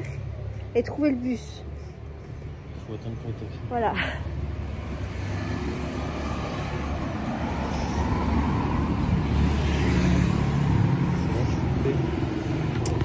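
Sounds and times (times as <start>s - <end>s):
low traffic rumble: 0.0s - 13.0s.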